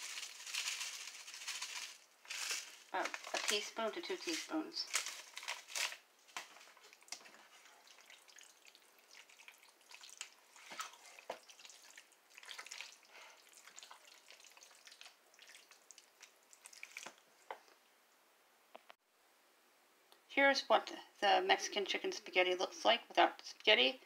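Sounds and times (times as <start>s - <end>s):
wooden spoon stirring thick food: 0.0s - 17.8s.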